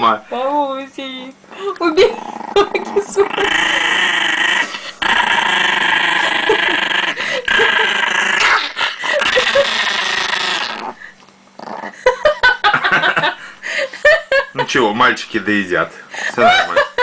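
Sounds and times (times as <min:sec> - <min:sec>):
dog growling: 0:01.5 - 0:12.2.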